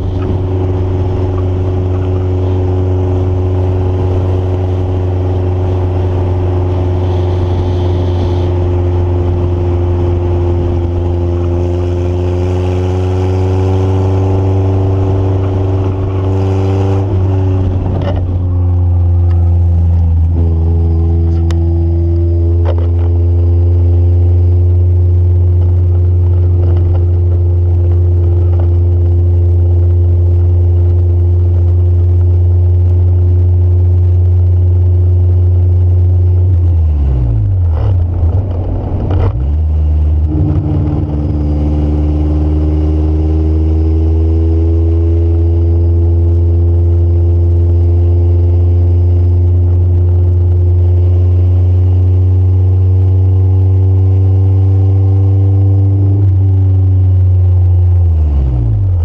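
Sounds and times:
car engine running: 0.0 - 59.0
low road rumble: 0.0 - 59.0.

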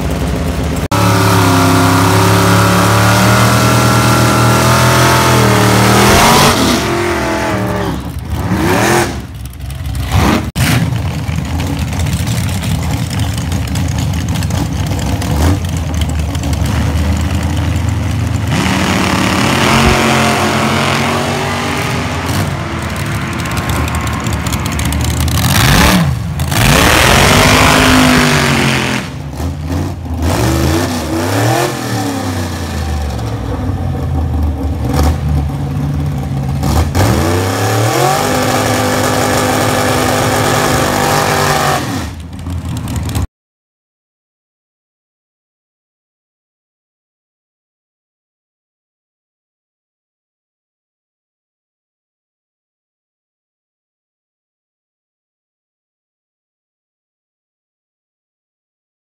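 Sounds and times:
drag car engines revving: 0.0 - 43.2.

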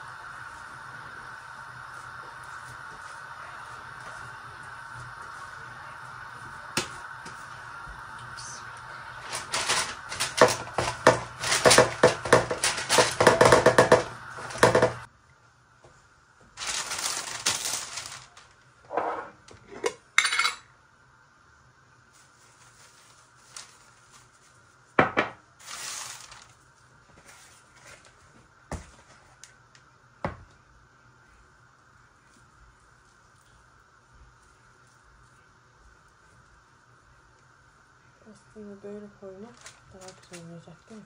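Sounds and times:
kitchen ware clattering: 9.6 - 15.1.

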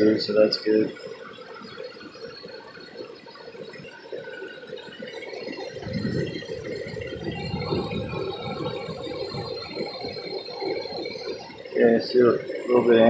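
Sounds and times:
air gurgling through fluid: 5.4 - 13.0.

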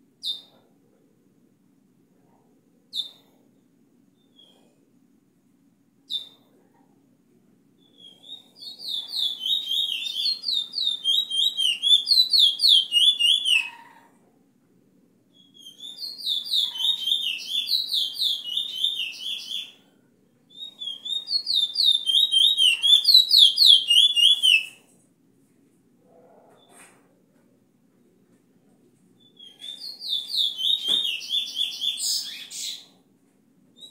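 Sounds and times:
bullfinch song: 7.8 - 14.0, 15.3 - 19.8, 20.5 - 24.8, 29.2 - 33.0.

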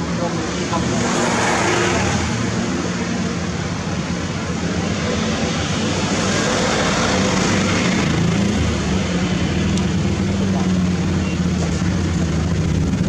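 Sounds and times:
truck engine running: 2.8 - 13.0.

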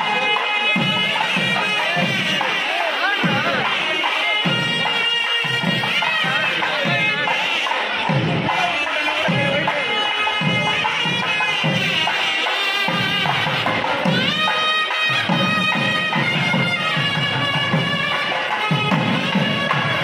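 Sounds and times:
drum beats: 0.0 - 20.0.

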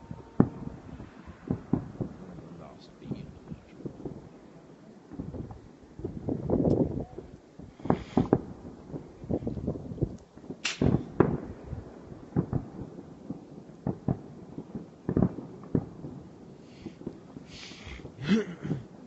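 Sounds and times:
distant fireworks bangs: 0.0 - 19.0.

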